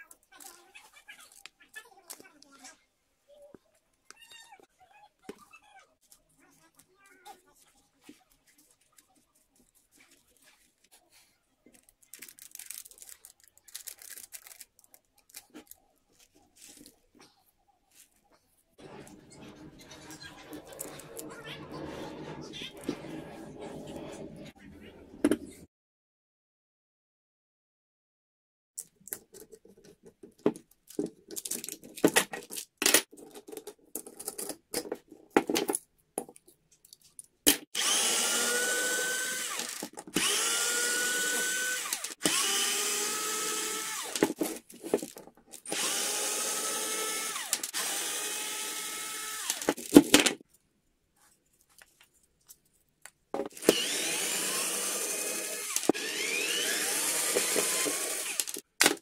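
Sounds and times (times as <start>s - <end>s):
cordless drill driving screws: 37.8s - 44.4s, 45.6s - 49.8s, 53.5s - 58.6s.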